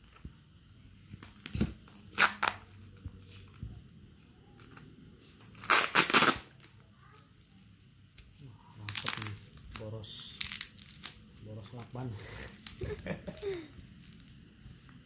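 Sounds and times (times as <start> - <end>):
packaging tearing and crinkling: 5.4 - 14.5.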